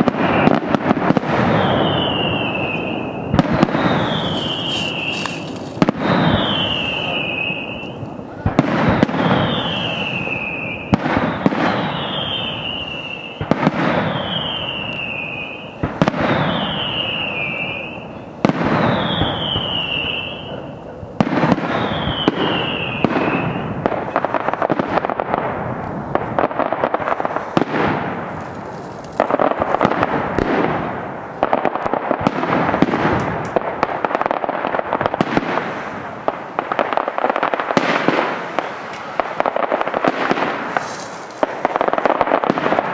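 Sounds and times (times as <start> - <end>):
fireworks crackling and popping: 0.0 - 42.9
falling whistle: 1.5 - 5.4, 6.0 - 8.0, 9.3 - 15.7, 16.4 - 20.6, 21.7 - 23.7
firework shells banging: 3.3 - 9.4, 31.6 - 34.3, 36.4 - 42.9.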